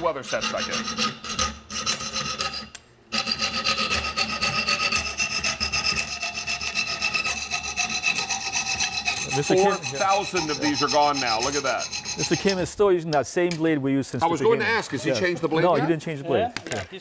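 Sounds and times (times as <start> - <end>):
hand saw rasping through nails: 0.0 - 12.7.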